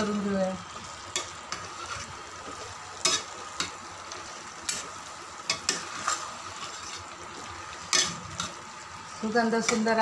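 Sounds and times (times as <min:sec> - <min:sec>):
food sizzling: 0:00.0 - 0:10.0
spatula scraping a pan: 0:01.1 - 0:03.8, 0:04.6 - 0:09.9.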